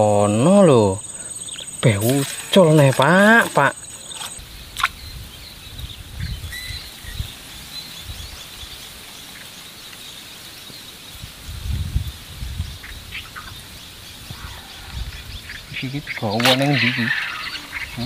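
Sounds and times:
faint bird chirps: 0:00.0 - 0:11.2, 0:11.8 - 0:18.0
high insect drone: 0:00.0 - 0:18.0
short falling bird call: 0:16.1 - 0:18.0.

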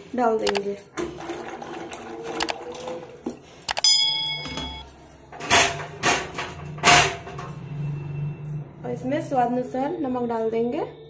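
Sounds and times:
ringing metallic clink: 0:03.7 - 0:05.3.

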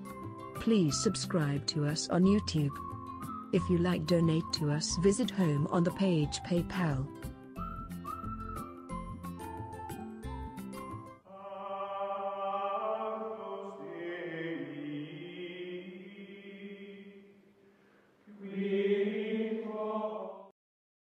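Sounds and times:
choir-like voices chanting held notes: 0:11.3 - 0:17.4, 0:18.3 - 0:20.5.

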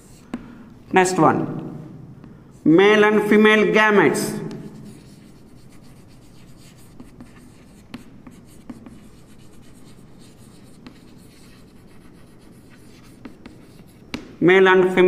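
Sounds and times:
chalk scratching on blackboard: 0:00.0 - 0:00.4, 0:04.4 - 0:14.3
chalk tapping on board: 0:00.0 - 0:00.5, 0:04.4 - 0:15.0.

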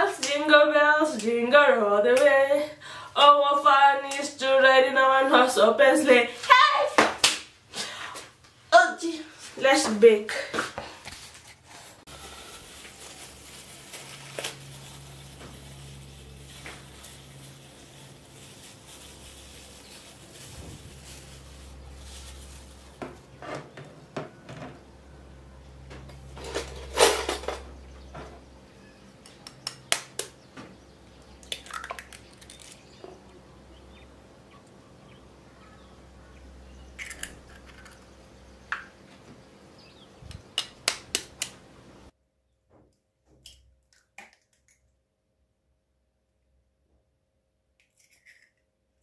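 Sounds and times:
low steady hum: 0:12.1 - 0:42.1.

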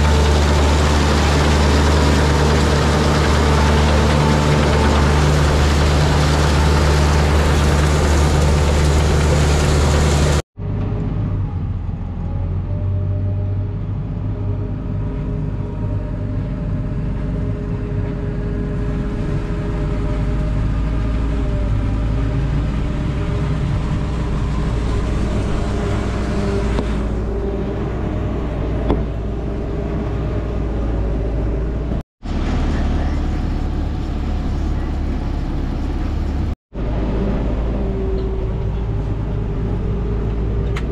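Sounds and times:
forage harvester chopping: 0:00.0 - 0:10.4
forage wagon unloading: 0:00.0 - 0:10.4
silage blower: 0:00.0 - 0:10.4
tractor engine: 0:00.0 - 0:13.0, 0:14.0 - 0:40.9.

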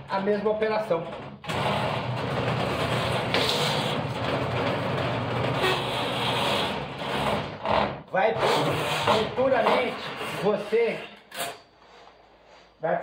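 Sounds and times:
drain cleaning machine motor rumbling: 0:01.5 - 0:07.6.

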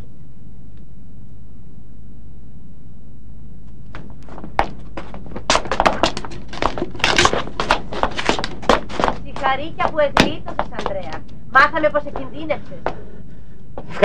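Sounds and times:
steady low hum: 0:00.0 - 0:14.0
footsteps on stone steps: 0:03.9 - 0:13.0.

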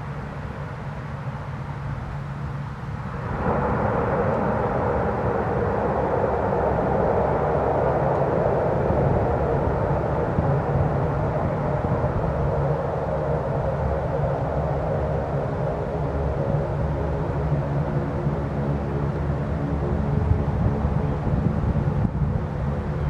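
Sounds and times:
low propeller hum: 0:00.0 - 0:23.0
turboprop engines droning: 0:00.0 - 0:23.0.

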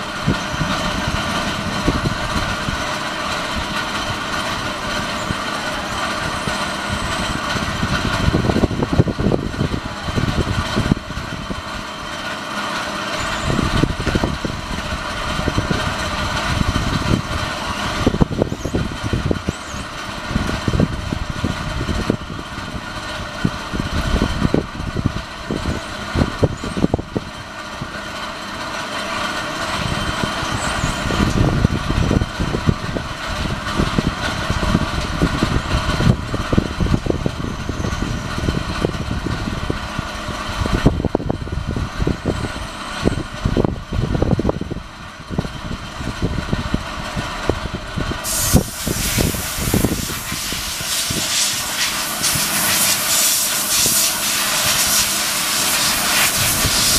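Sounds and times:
electric rc buggy running on dirt: 0:00.0 - 0:56.9
loud hiss: 0:48.2 - 0:56.9.

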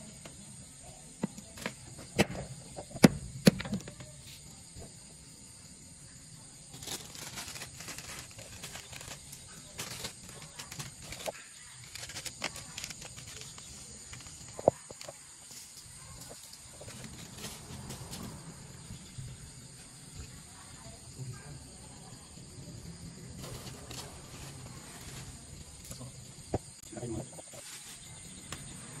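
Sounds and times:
salt shaken from plastic bag: 0:06.8 - 0:14.4.

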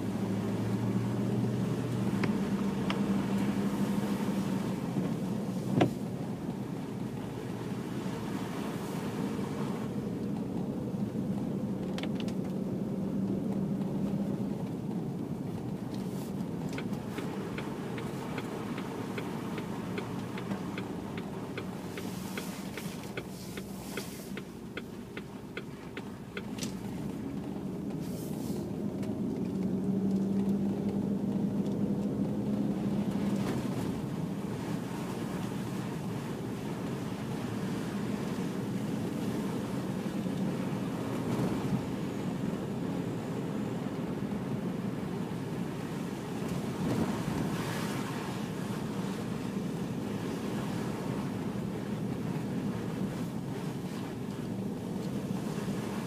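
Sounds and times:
car tyre and engine drone: 0:00.0 - 0:56.0
faint light ticks: 0:01.9 - 0:03.5, 0:10.2 - 0:10.7, 0:11.3 - 0:12.6, 0:13.2 - 0:32.2, 0:54.0 - 0:55.2.

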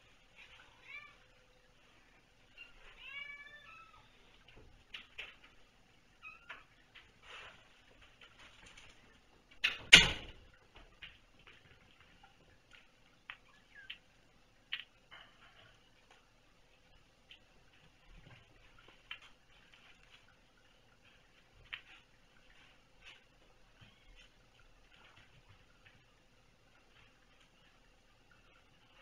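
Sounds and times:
small taps and clicks: 0:10.7 - 0:15.3.

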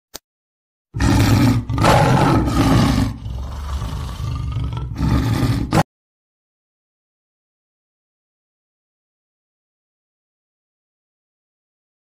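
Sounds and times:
lion roaring: 0:01.0 - 0:05.9.

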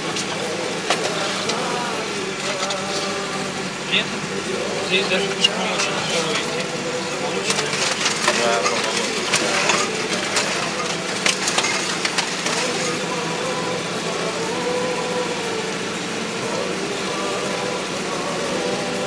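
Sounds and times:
vehicle engine running: 0:00.0 - 0:19.0.

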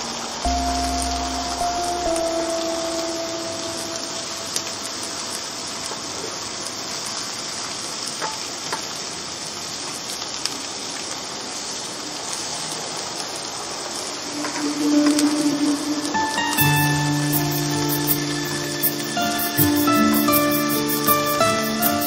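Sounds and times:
music: 0:00.5 - 0:04.9, 0:14.4 - 0:22.0
food sizzling on a grill: 0:00.5 - 0:22.0.

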